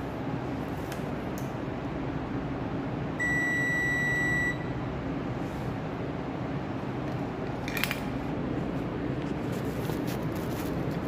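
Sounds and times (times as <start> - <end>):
high continuity beep: 3.2 - 4.8.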